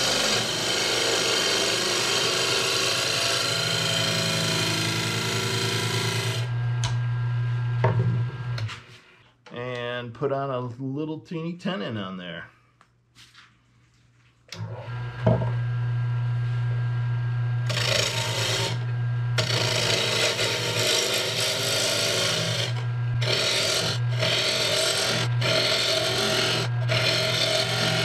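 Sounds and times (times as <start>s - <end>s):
lathe motor humming: 0.0s - 7.4s, 14.6s - 28.0s
tool scraping wood: 17.7s - 28.0s.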